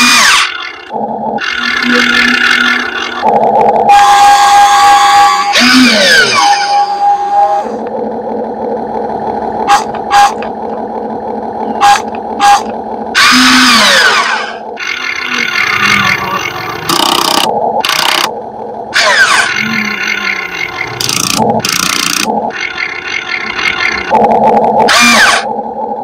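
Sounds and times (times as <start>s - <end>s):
small electric motors whirring: 19.0s - 23.9s.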